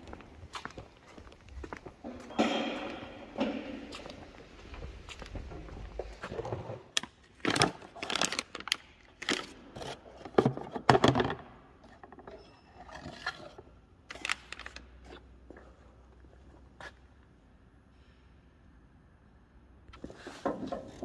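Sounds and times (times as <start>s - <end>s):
plastic packaging crinkling: 7.4s - 9.6s.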